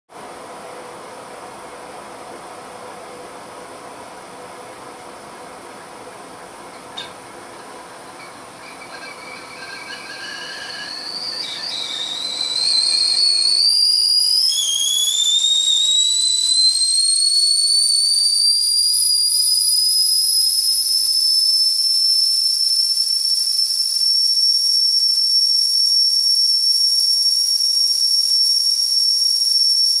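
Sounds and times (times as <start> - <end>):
kettle hissing: 7.0 - 30.0
kettle whistling high: 7.0 - 30.0.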